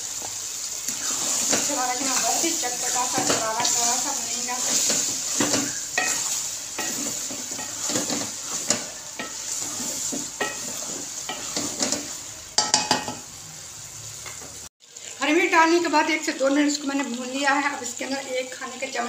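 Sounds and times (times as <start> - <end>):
food sizzling in a pot: 0.0 - 19.0
spatula scraping a metal pot: 0.9 - 12.2.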